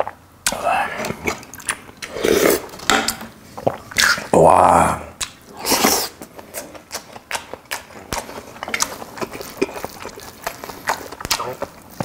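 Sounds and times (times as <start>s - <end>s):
wet chewing smacks: 0.0s - 2.1s, 5.2s - 12.0s
loud bite: 5.2s - 12.0s.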